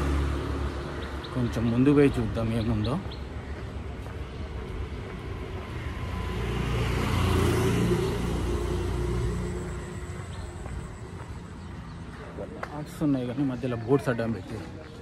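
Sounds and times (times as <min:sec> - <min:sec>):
vehicle passing rumble: 0:00.0 - 0:03.0, 0:03.8 - 0:12.6.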